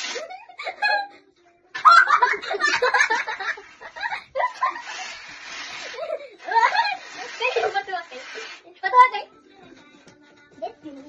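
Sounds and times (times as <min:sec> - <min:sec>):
girls giggling: 0:00.0 - 0:07.6.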